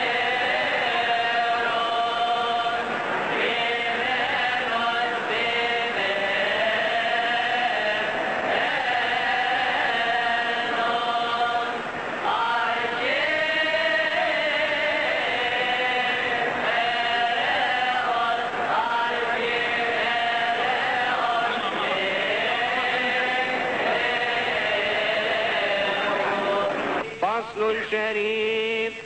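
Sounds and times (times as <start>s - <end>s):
choir chanting a hymn: 0.0s - 28.7s.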